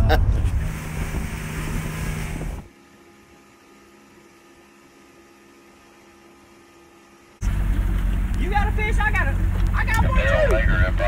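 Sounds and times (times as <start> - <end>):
wind rumble on microphone: 0.0 - 2.7, 9.4 - 11.0
boat motor: 0.0 - 11.0.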